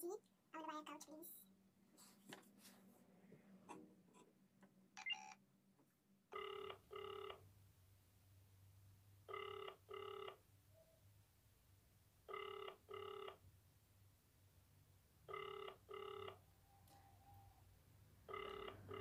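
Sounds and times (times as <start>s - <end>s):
phone beep: 5.0s - 5.4s, 6.4s - 7.4s, 15.3s - 16.4s, 18.3s - 19.0s
phone ringback tone: 5.0s - 5.4s, 6.3s - 7.4s, 9.3s - 10.4s, 12.3s - 13.4s, 15.3s - 16.4s, 18.2s - 19.0s.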